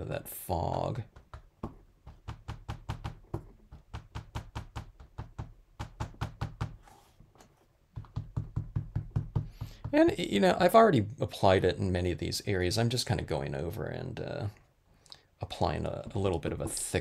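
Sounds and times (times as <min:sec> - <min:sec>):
rapid light tapping on card: 0:01.0 - 0:06.8, 0:07.9 - 0:10.2.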